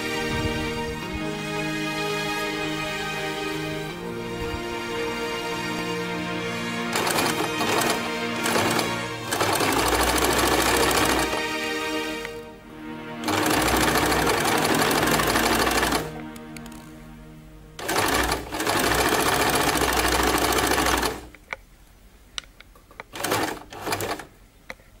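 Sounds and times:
electric sewing machine stitching: 6.8s - 11.6s, 13.2s - 16.9s, 17.8s - 21.3s, 23.1s - 24.3s.

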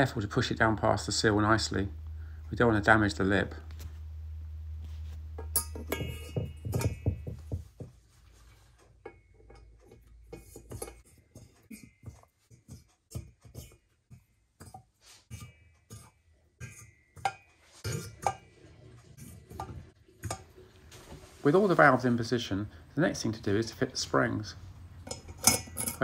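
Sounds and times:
metal valves clicking and clinking: 5.4s - 7.6s, 8.8s - 13.8s, 25.0s - 26.0s.

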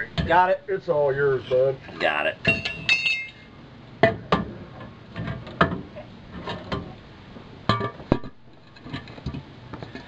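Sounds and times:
metal clanks on concrete floor: 2.5s - 3.4s.

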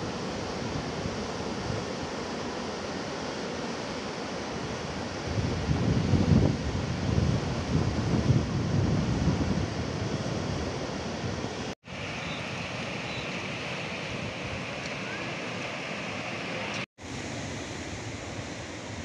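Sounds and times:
wind buffeting microphone: 5.0s - 16.6s.

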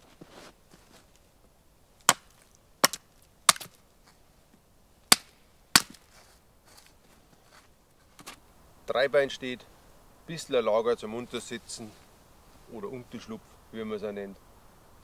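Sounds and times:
chopping strikes into wooden pole: 2.1s - 3.7s, 5.1s - 6.0s.

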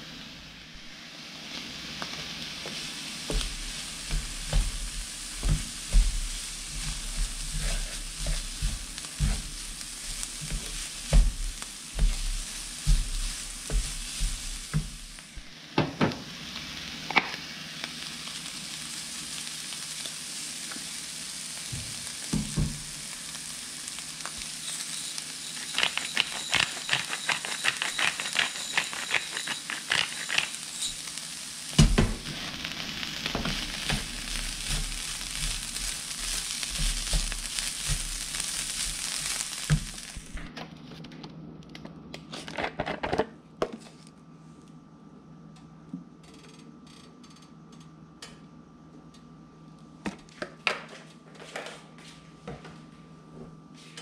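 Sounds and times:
vegetables sizzling in a frying pan: 0.0s - 40.5s
wooden spatula scraping and knocking: 2.6s - 15.5s, 33.3s - 40.5s
pepper grinder clicking: 25.6s - 30.6s.

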